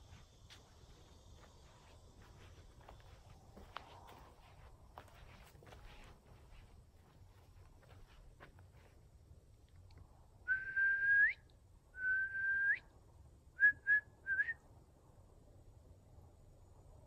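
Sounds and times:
person whistling: 0:10.5 - 0:11.4, 0:12.0 - 0:12.8.

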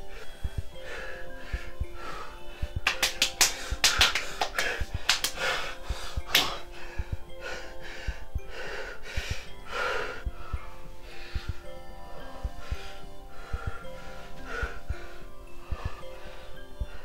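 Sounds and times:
held musical drone: 0:00.0 - 0:17.0
man gasping and breathing heavily: 0:03.5 - 0:17.0.

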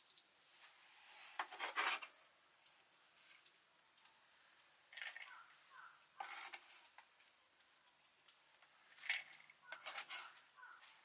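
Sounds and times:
squeaky scrape into bowl: 0:01.2 - 0:02.2, 0:06.2 - 0:06.8, 0:09.0 - 0:10.5
knife scraping cabbage on wood: 0:01.3 - 0:02.2, 0:06.2 - 0:06.9, 0:09.7 - 0:10.8.

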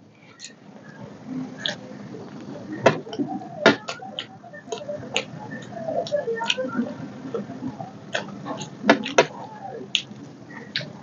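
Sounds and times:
person chewing food: 0:01.6 - 0:01.8.

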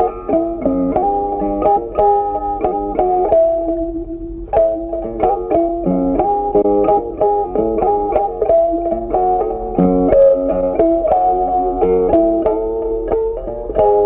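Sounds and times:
plucked guitar melody: 0:00.0 - 0:14.0.

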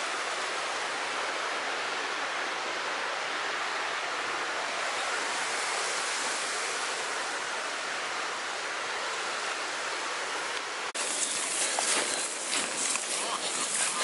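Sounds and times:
bright rustling noise: 0:11.0 - 0:14.0.

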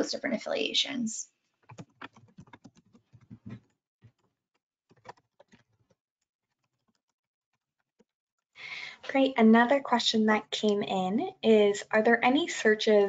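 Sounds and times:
faint keyboard typing: 0:01.6 - 0:07.2.

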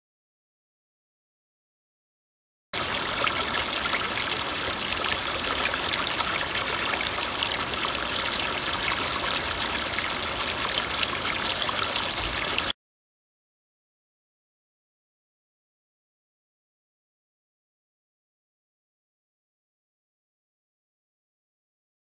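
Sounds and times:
water pouring into a tub: 0:02.8 - 0:12.8.

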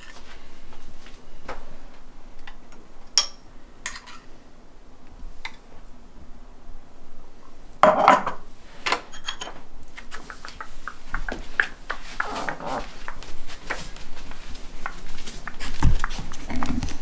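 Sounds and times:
bare footsteps: 0:10.2 - 0:17.0.

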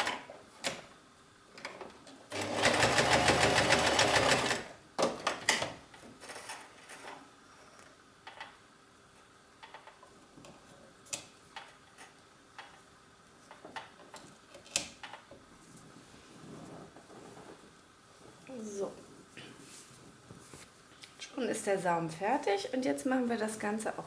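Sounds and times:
sewing machine running: 0:02.3 - 0:04.7.

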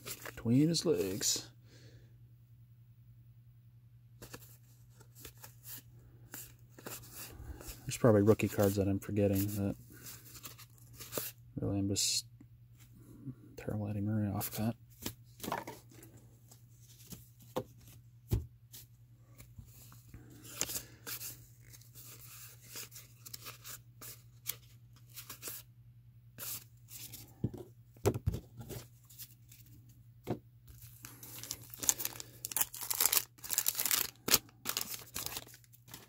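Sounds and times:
wax paper wrapper tearing: 0:31.0 - 0:36.0.

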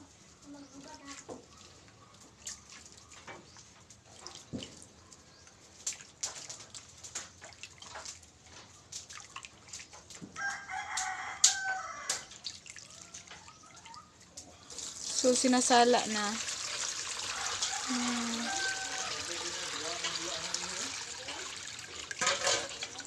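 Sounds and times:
hands squelching in water: 0:05.7 - 0:10.2
rooster crowing: 0:10.4 - 0:12.3, 0:17.2 - 0:20.0.

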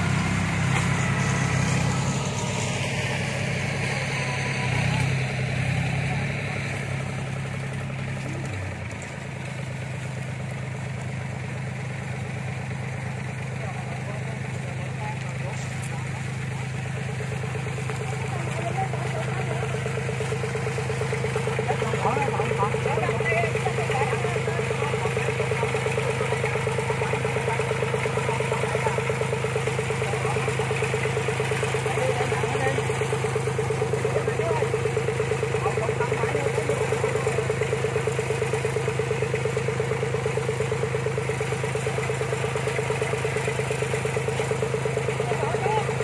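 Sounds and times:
machine engine idling: 0:00.0 - 0:46.0.

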